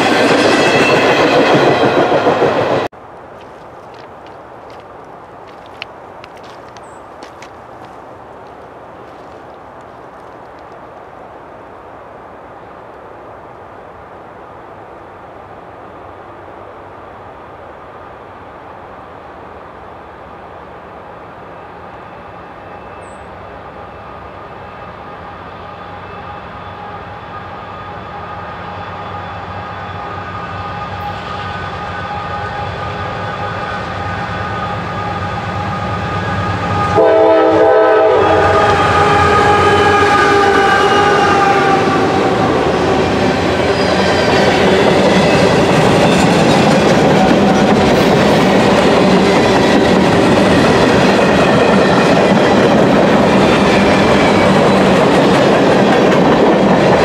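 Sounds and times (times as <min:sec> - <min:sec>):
diesel locomotives passing: 0:00.0 - 0:11.9, 0:13.4 - 0:57.0
train horn sounding: 0:22.0 - 0:44.9.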